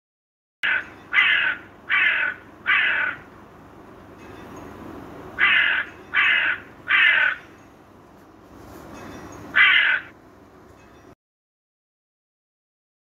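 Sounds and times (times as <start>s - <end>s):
crow cawing: 0.6s - 3.3s, 5.4s - 7.5s, 9.6s - 10.2s.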